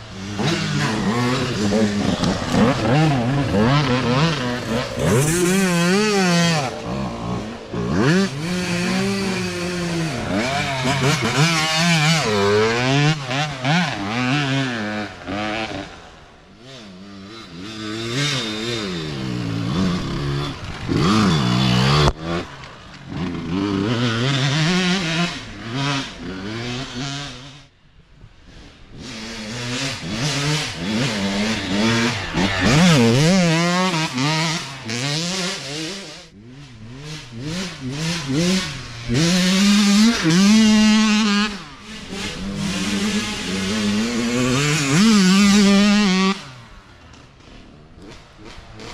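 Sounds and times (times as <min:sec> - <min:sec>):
dirt bike engines revving: 0:00.0 - 0:48.9.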